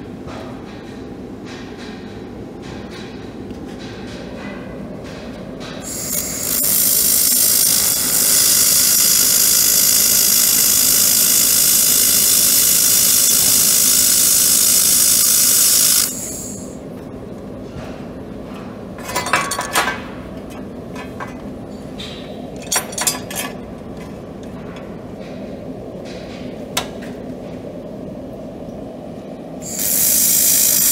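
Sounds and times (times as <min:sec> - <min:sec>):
laser welder high hiss: 0:05.8 - 0:16.8, 0:29.6 - 0:30.9.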